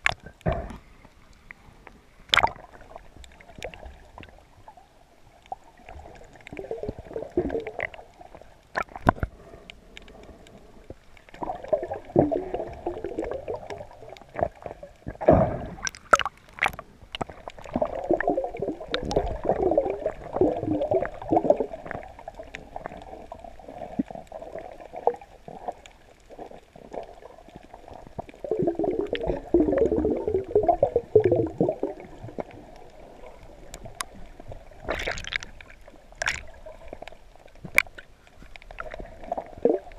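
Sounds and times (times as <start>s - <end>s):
muffled underwater gurgling: 11.4s - 35.6s, 38.8s - 39.9s.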